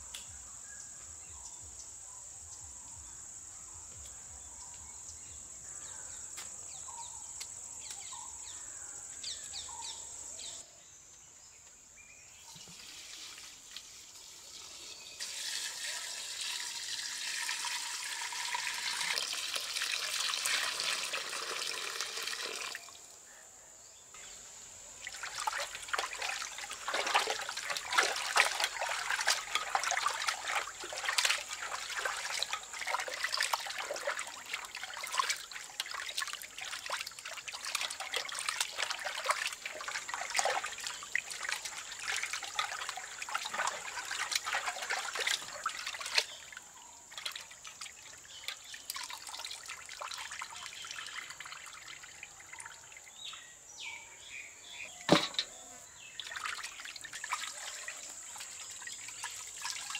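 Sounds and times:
water splashing and sloshing: 0:24.9 - 0:53.3, 0:54.8 - 0:59.9
sharp knock: 0:55.1 - 0:55.5.

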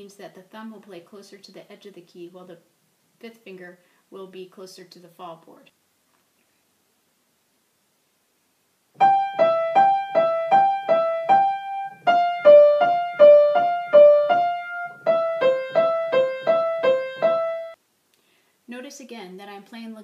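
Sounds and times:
piano played legato: 0:09.0 - 0:17.8.

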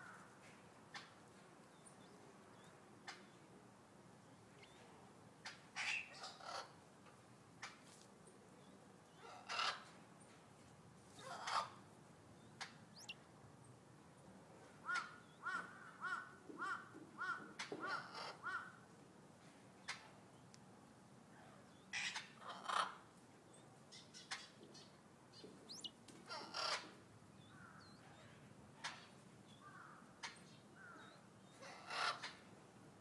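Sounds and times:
harsh bird calls: 0:12.4 - 0:13.2, 0:25.6 - 0:32.3
bird repeated arched notes: 0:12.9 - 0:13.2, 0:25.7 - 0:25.9.

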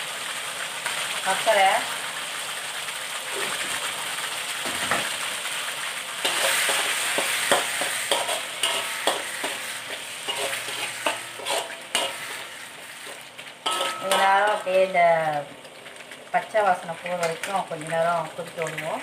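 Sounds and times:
paste sizzling in oil: 0:00.0 - 0:19.0
spatula scraping and tapping pan: 0:06.2 - 0:14.9.

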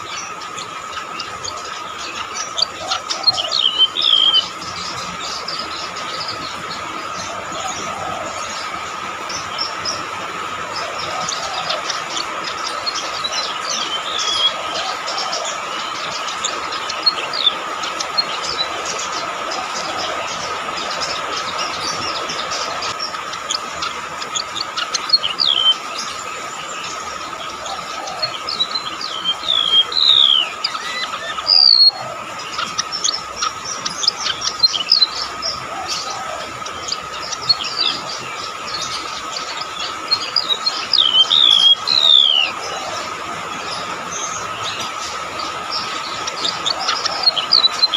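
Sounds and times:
steady high hum: 0:00.0 - 0:47.9
bird chirping and whistling: 0:00.9 - 0:04.8, 0:21.4 - 0:25.8, 0:27.8 - 0:38.2, 0:38.9 - 0:42.8.

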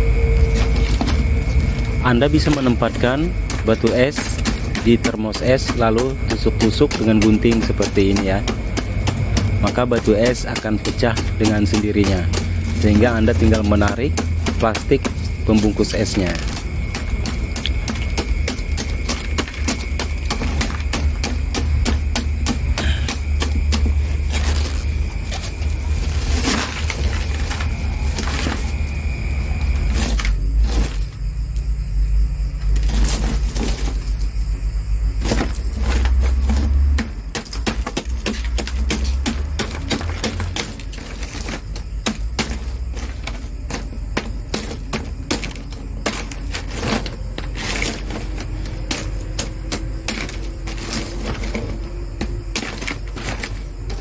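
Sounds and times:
plastic wrapping rustling: 0:00.0 - 0:05.4, 0:12.0 - 0:21.2, 0:22.8 - 0:31.2, 0:52.5 - 0:54.0
ice chunks knocking and crunching: 0:00.0 - 0:31.2, 0:32.6 - 0:34.3, 0:35.2 - 0:54.0.

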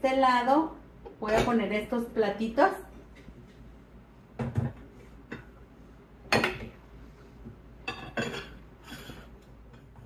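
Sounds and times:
ceramic bowls clinking: 0:07.8 - 0:10.0.

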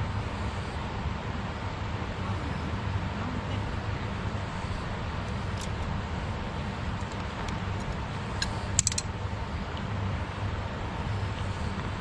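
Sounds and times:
fishing tackle clicking: 0:08.8 - 0:09.1.

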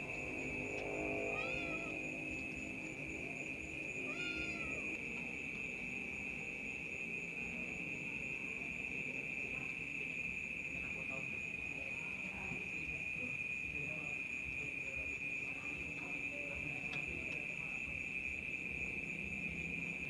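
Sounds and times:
crickets trilling: 0:00.0 - 0:20.0
cat meowing: 0:01.3 - 0:02.0, 0:04.1 - 0:05.0.

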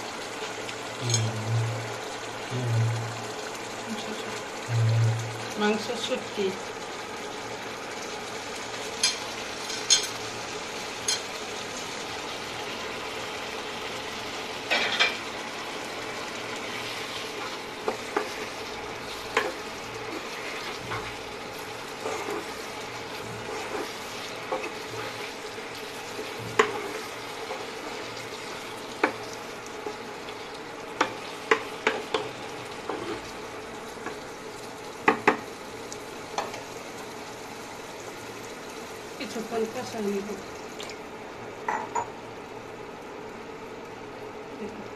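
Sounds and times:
meat sizzling in a frying pan: 0:00.0 - 0:44.9
spatula scraping and knocking pan: 0:16.9 - 0:21.2, 0:21.9 - 0:25.4, 0:26.1 - 0:28.0, 0:31.0 - 0:33.2.

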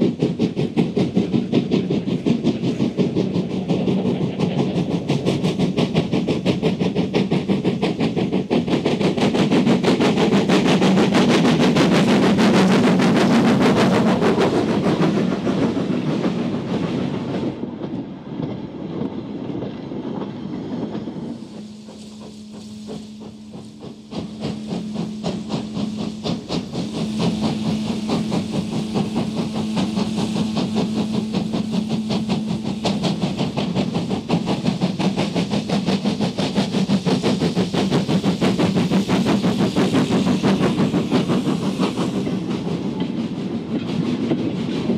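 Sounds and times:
hissing steam: 0:00.0 - 0:44.9
steam locomotive exhaust beating: 0:00.0 - 0:44.9.

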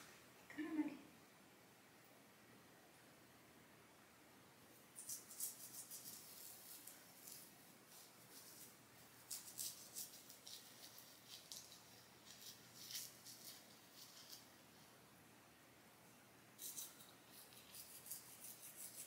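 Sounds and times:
toothbrush brushing teeth: 0:05.0 - 0:14.6, 0:16.6 - 0:19.0.

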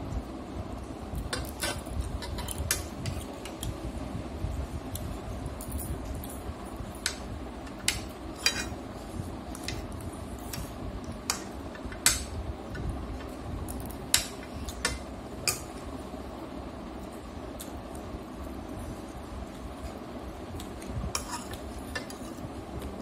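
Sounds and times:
low background hum: 0:00.0 - 0:23.0.

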